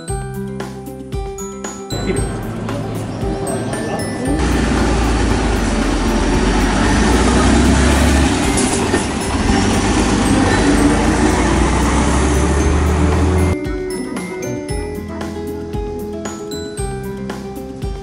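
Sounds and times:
bus diesel engine droning: 2.0 - 13.6.

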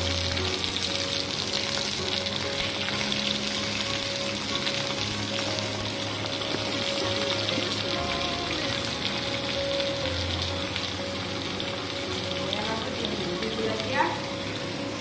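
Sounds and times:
vegetables sizzling in hot oil: 0.0 - 15.0.

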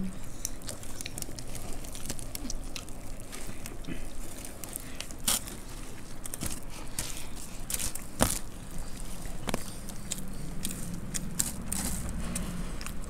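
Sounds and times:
crunching and chewing snack: 0.0 - 13.0
fingers crackling through snack: 0.0 - 13.0.

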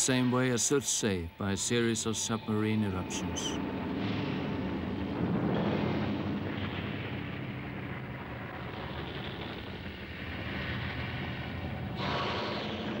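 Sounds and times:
volcanic eruption roar: 3.5 - 13.0
hiss: 12.0 - 13.0.

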